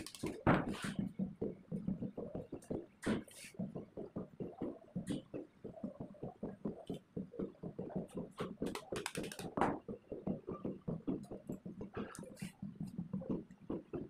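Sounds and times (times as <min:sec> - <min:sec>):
tape clicking and rustling: 0:00.0 - 0:00.8, 0:08.4 - 0:09.8.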